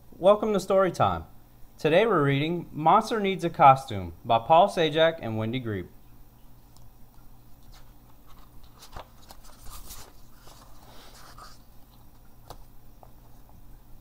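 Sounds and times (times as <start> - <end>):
paper pages rustling: 7.6 - 13.2.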